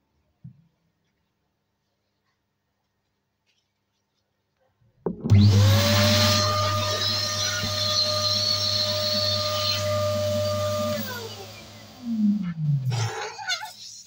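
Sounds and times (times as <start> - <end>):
electric balloon pump whining: 5.1 - 14.0.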